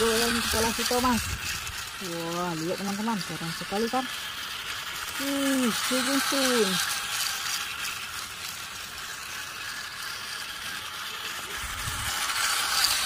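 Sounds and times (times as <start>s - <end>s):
toy trains whirring rattle: 0.0s - 13.0s.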